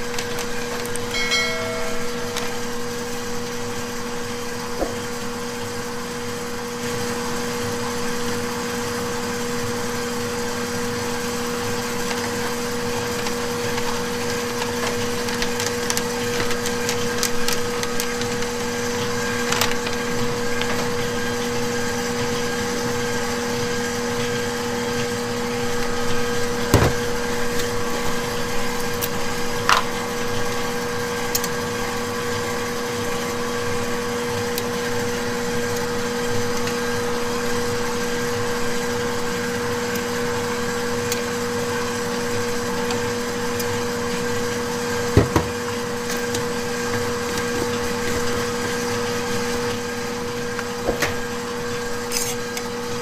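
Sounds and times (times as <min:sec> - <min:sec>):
machine hum: 0:00.0 - 0:08.3
brief high tone: 0:01.1 - 0:03.6
paper bag rustling: 0:12.2 - 0:21.1.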